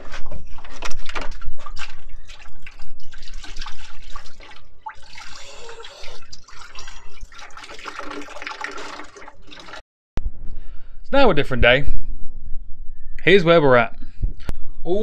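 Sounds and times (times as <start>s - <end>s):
liquid pouring into bucket: 0.8s - 9.8s.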